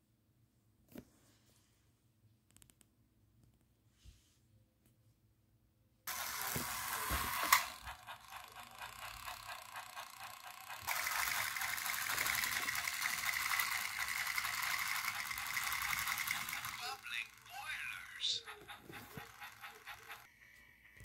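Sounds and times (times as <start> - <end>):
toy train motor whirring: 6.1 - 21.0.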